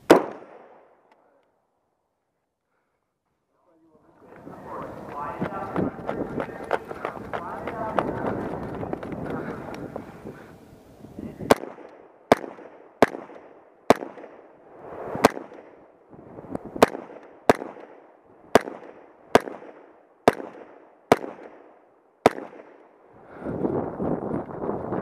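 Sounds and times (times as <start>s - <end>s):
rifle shots with echo: 0.0s - 1.0s, 11.5s - 14.6s, 15.2s - 15.8s, 16.8s - 22.9s.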